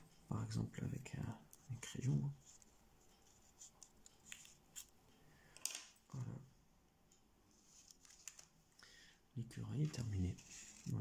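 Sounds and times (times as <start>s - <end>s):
paper rustling and crinkling: 7.7s - 8.6s, 9.8s - 11.0s.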